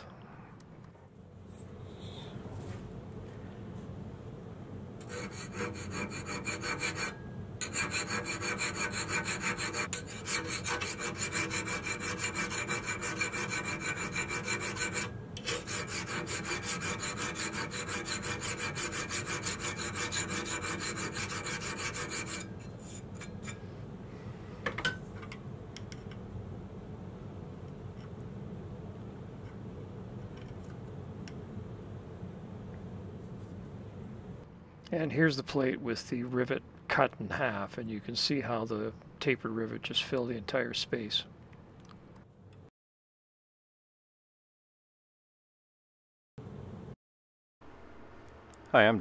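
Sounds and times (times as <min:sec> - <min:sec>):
hand file rasping on metal: 0:05.0 - 0:23.6.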